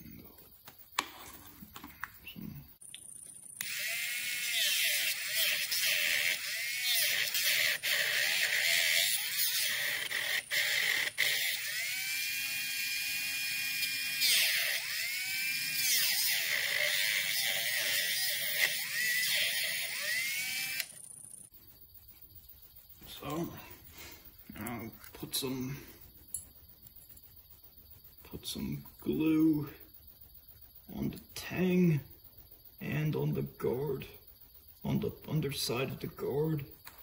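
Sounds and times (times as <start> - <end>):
rotary tool cutting: 3.6 - 21.0.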